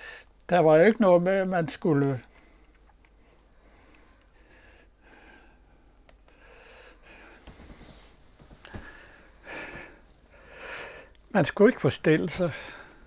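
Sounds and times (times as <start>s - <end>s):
man breathing softly: 2.3s - 11.2s, 12.4s - 13.0s.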